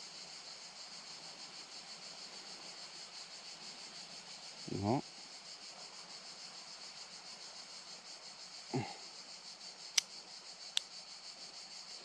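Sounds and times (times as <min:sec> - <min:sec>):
insects chirring: 0:00.0 - 0:12.0
person grunting: 0:08.8 - 0:09.0.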